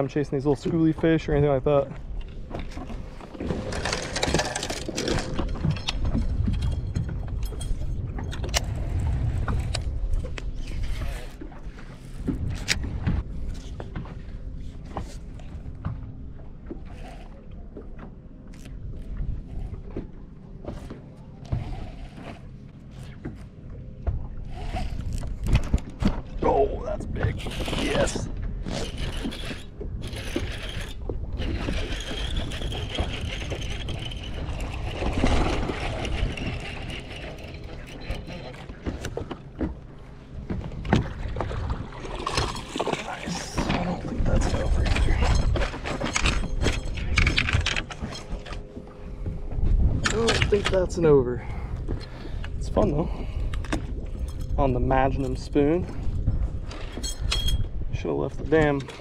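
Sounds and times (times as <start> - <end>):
wind rumbling on microphone: 0.0 - 59.0
fishing reel gears whirring: 27.3 - 38.5.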